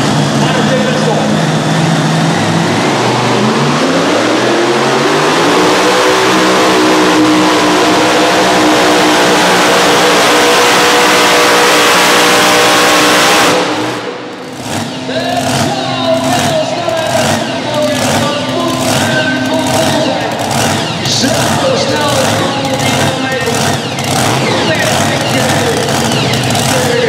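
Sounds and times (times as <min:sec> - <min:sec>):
tractor engine revving hard: 0:00.0 - 0:27.0
voices: 0:00.4 - 0:01.4, 0:14.8 - 0:27.0.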